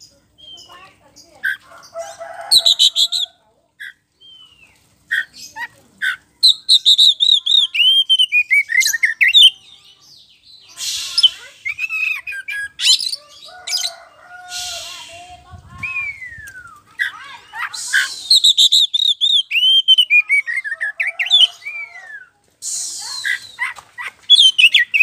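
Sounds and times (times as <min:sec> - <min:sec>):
bird singing whistles: 0:06.4 - 0:09.5, 0:15.7 - 0:16.8, 0:17.9 - 0:20.4.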